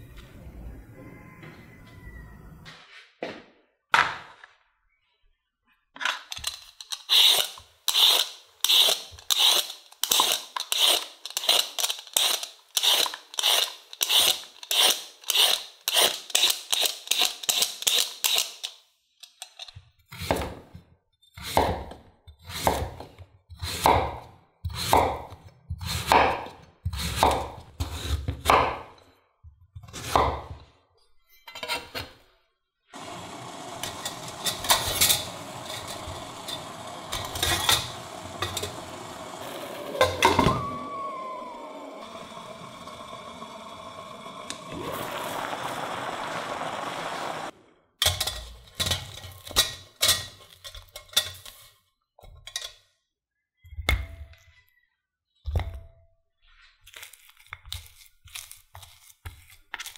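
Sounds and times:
metal ringing with falling tone: 40.0 - 41.7.

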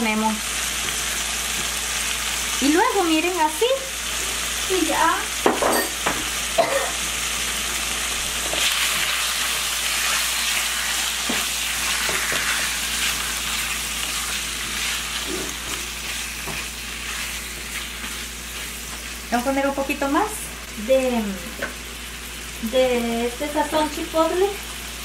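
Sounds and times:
chicken sizzling in a frying pan: 0.0 - 25.0
spatula scraping and tapping pan: 15.2 - 18.2.

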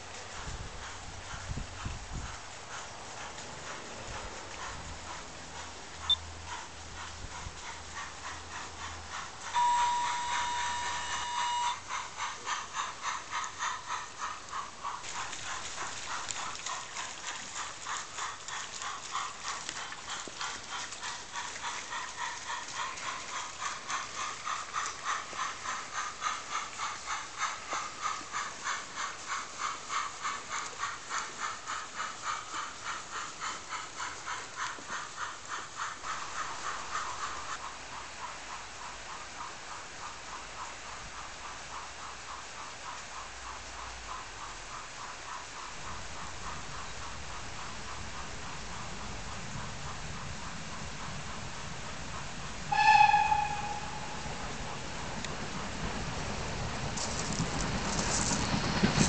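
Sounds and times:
model steam locomotive whistle: 9.5 - 11.9, 52.7 - 54.6.

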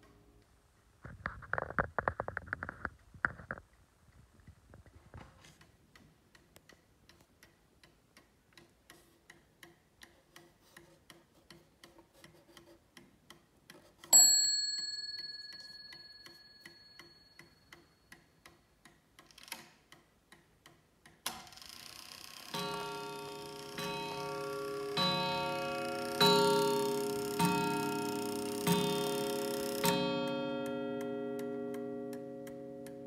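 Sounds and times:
clock ticking: 5.6 - 33.0
clock chime strike: 22.5 - 33.0.

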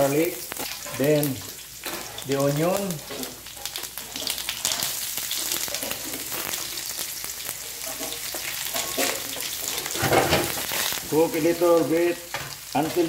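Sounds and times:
onion sizzling in hot oil: 0.0 - 13.0
metal spoon scraping pan: 7.8 - 10.9.

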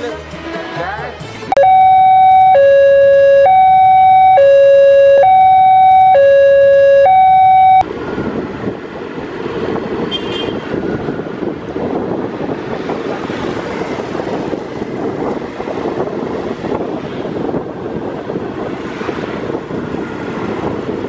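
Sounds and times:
electronic two-tone siren: 1.5 - 7.9
wind buffeting microphone: 7.8 - 21.0.

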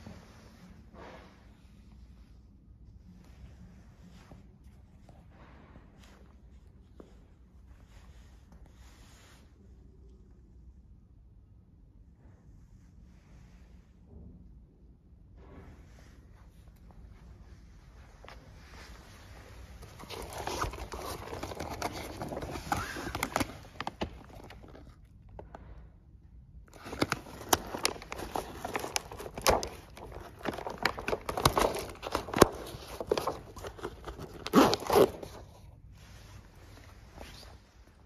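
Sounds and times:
sail cloth crinkling: 18.3 - 25.1, 26.7 - 38.0
zipper scraping and clicking: 26.7 - 35.4.

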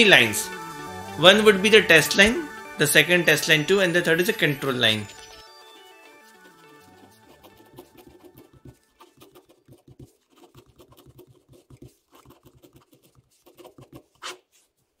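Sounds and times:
ballpoint pen scratching on paper: 6.2 - 14.8.

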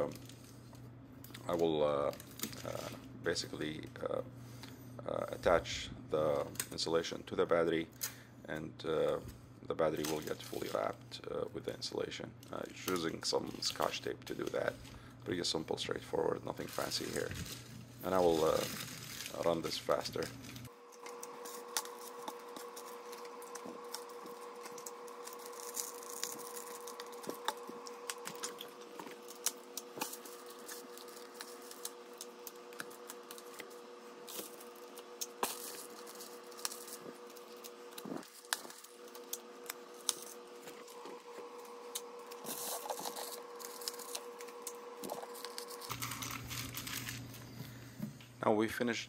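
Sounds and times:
steady hum: 0.0 - 49.0
bubble foil crinkling: 2.1 - 3.0, 9.8 - 11.0, 16.4 - 47.6.

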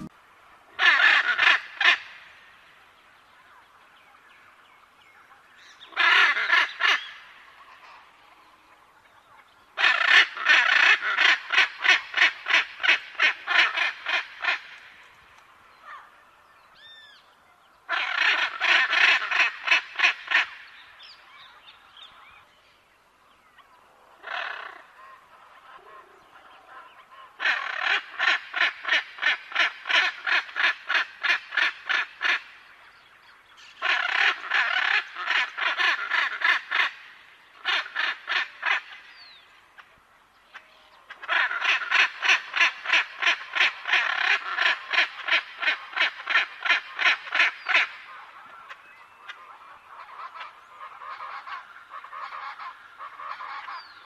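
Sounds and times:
macaw harsh calls: 0.8 - 2.2, 5.6 - 7.4, 9.8 - 14.8, 17.9 - 20.8, 24.2 - 25.2, 26.8 - 32.6, 33.6 - 39.9, 40.5 - 54.0.

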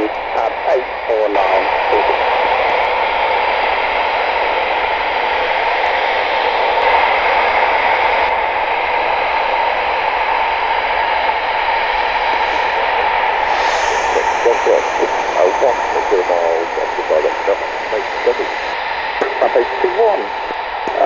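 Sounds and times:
radio static hiss: 0.0 - 2.8, 12.1 - 21.0.

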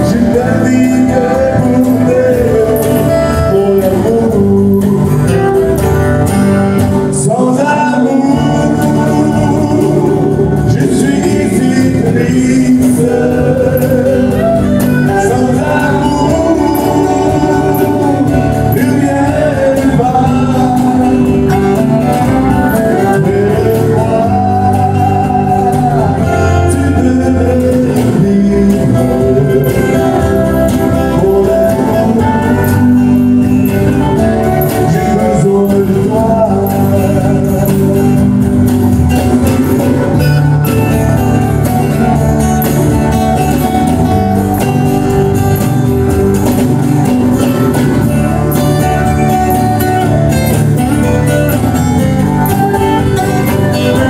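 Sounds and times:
man singing into microphone: 0.0 - 5.8, 7.0 - 42.4
backing band with drums: 0.0 - 54.0
strummed acoustic guitar: 0.0 - 54.0.

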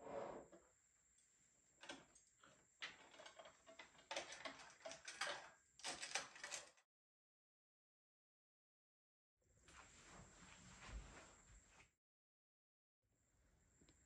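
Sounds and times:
cosmetics clicking and clattering: 2.8 - 6.8.

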